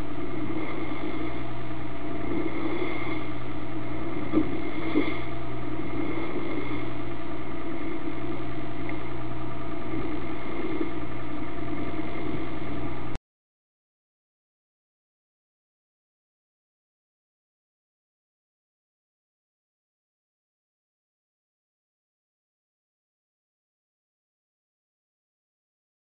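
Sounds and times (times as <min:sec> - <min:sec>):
boat engine droning: 0:00.0 - 0:13.2.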